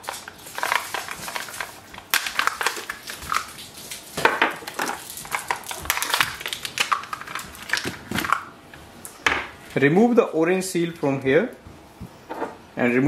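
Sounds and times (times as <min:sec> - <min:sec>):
plastic packaging crackling: 0:00.0 - 0:08.6.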